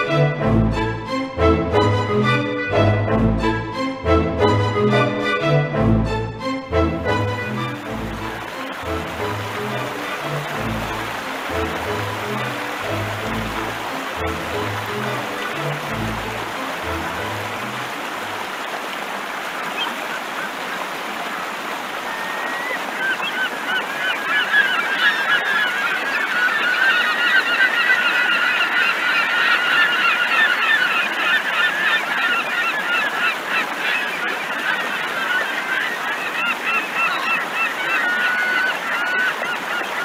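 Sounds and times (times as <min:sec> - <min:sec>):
birds honking: 0:06.4 - 0:18.4, 0:22.1 - 0:40.0.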